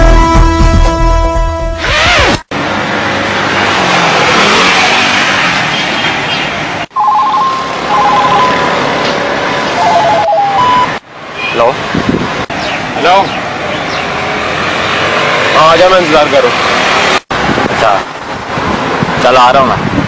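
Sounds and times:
traffic going by: 2.5s - 20.0s
mobile phone beeps: 7.0s - 8.7s, 9.8s - 11.0s.

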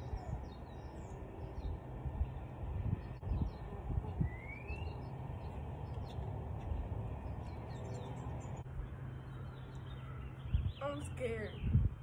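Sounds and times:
bird chirp: 0.0s - 11.9s
low street rumble: 0.0s - 12.0s.

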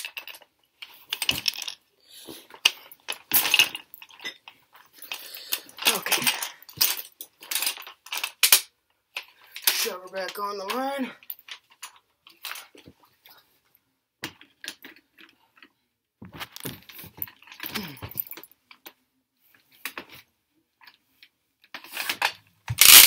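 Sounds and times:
hot stick clicks and metallic rattles: 2.5s - 12.6s, 21.6s - 23.0s.

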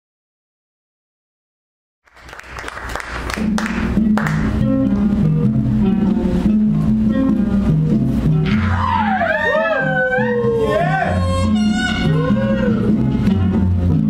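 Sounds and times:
audience applause: 2.1s - 4.5s
music with bass line: 3.1s - 14.0s.

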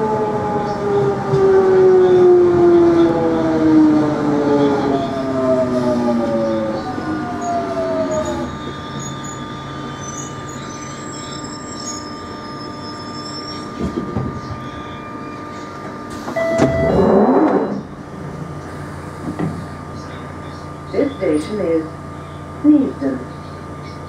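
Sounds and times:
traction motor whine: 0.0s - 20.1s
train running rumble: 0.0s - 22.1s
brake squeal: 7.4s - 15.7s.

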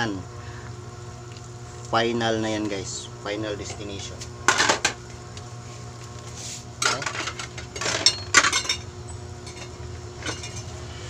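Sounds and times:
steady low hum: 0.0s - 11.0s
metal kitchenware clattering on pot: 6.8s - 8.8s.

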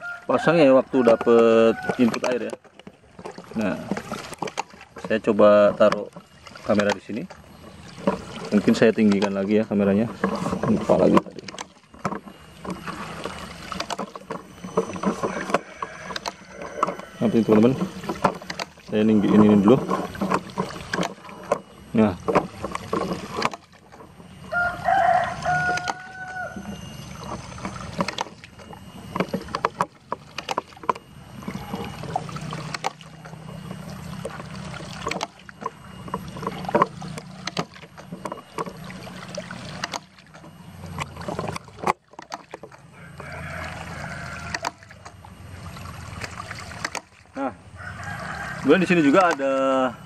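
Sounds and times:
rooster crowing: 0.0s - 2.2s, 15.2s - 17.5s, 24.4s - 27.0s, 42.9s - 44.8s, 47.7s - 49.2s
water running and splashing: 0.4s - 49.9s
knocks and clicks: 1.0s - 24.6s, 25.3s - 42.8s.

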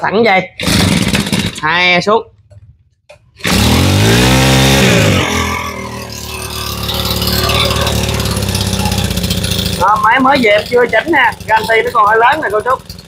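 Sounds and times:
brush cutter engine running: 3.4s - 13.0s.

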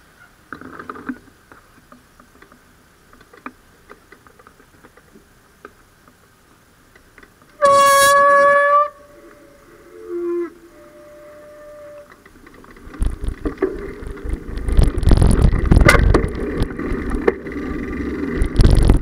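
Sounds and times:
loud horn blast: 7.6s - 12.2s.

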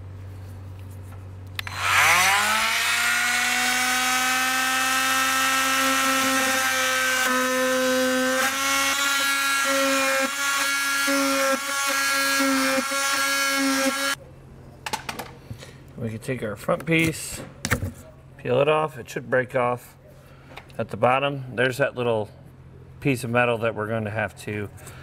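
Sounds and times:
oscillating multi-tool cutting: 1.6s - 14.2s.

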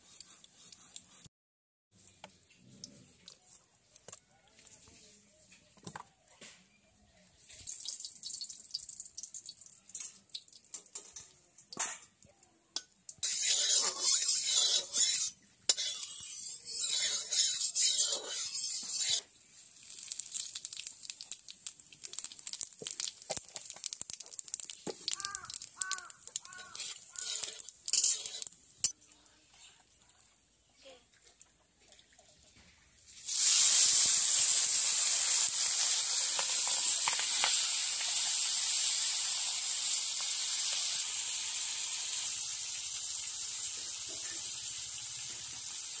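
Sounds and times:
chillies sizzling in hot oil: 7.4s - 29.8s, 33.0s - 46.0s
metal spatula scraping pan: 13.2s - 19.3s, 26.4s - 28.6s.

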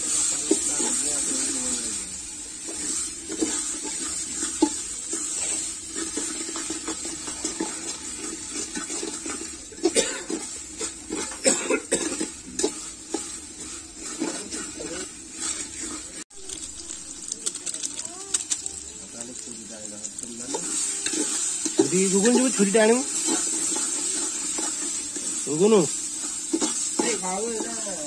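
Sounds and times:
metal ladle scraping a pot: 12.0s - 17.2s, 20.2s - 25.5s, 26.1s - 27.8s
steady high hiss: 24.2s - 28.0s.

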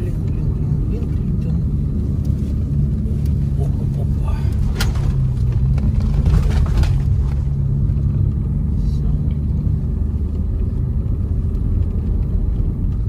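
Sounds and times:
car engine droning: 0.0s - 13.0s
knocks and scrapes: 4.5s - 7.7s.

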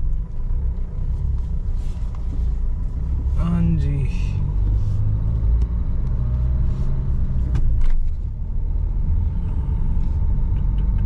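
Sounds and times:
vehicle engine and road rumble: 0.0s - 11.0s.

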